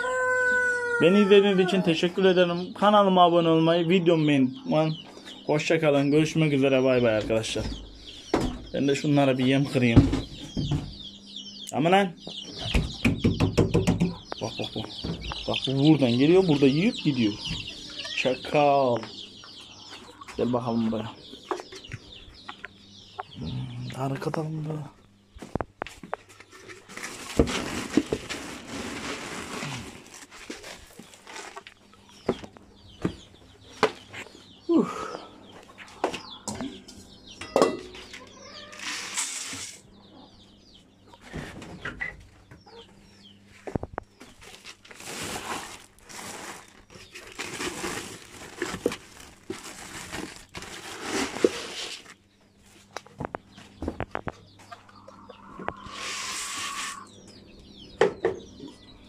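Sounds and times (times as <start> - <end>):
chickens clucking: 0.0 - 24.8, 25.4 - 59.0
plastic sacks rustling: 26.8 - 31.8, 44.3 - 52.2.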